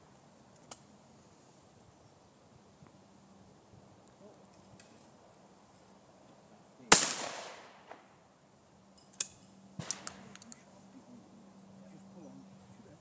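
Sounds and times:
shotgun shot: 0:06.9 - 0:08.1, 0:09.8 - 0:10.4.

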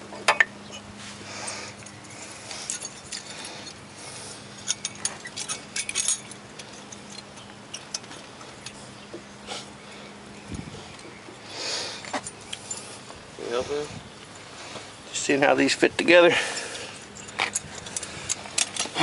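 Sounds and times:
metallic clicks and rattles: 0:04.6 - 0:08.8, 0:16.6 - 0:19.0.

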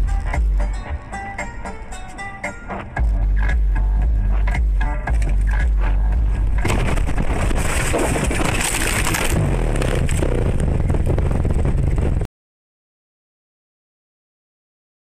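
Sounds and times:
car crashing through brush: 0:06.6 - 0:10.4.

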